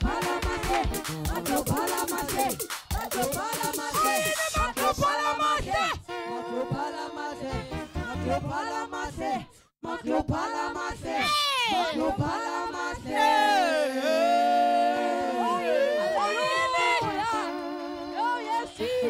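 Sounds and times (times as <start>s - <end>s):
gospel singing: 0.0s - 19.0s.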